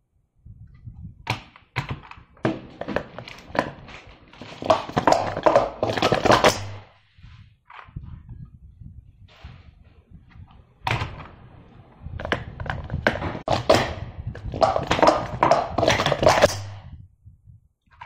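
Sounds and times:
plastic cups clacking: 1.3s - 6.8s, 14.4s - 16.8s.

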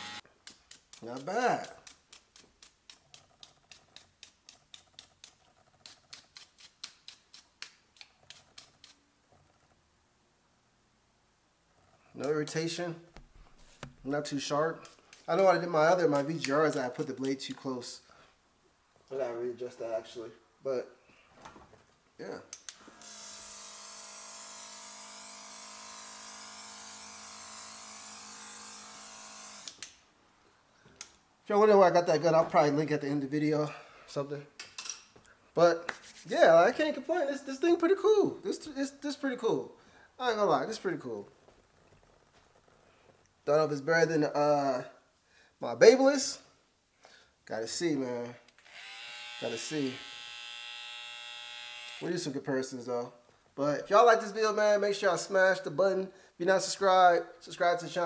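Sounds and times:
hair trimmer humming: 0.0s - 0.2s, 22.9s - 29.8s, 48.6s - 52.1s.

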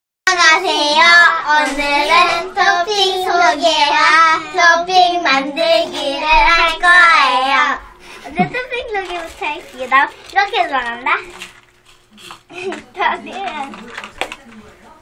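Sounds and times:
girls singing together: 0.3s - 8.5s.

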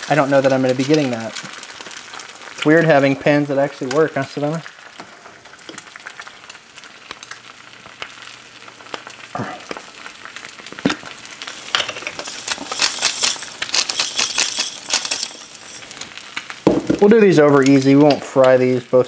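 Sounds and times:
eggs frying in grease: 0.0s - 19.0s
knocks: 16.7s - 17.1s.

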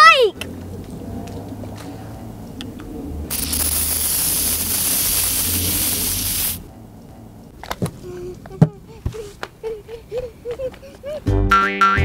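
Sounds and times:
aerosol can spraying hiss: 3.3s - 6.7s.

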